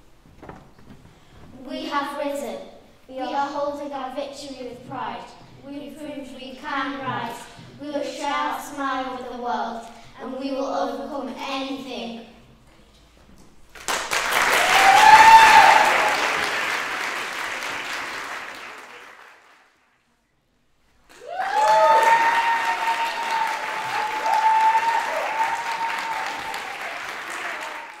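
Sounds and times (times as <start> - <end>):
audience applauding: 13.7 - 19.8, 21.1 - 28.0
crowd cheering: 14.2 - 19.4, 21.1 - 28.0.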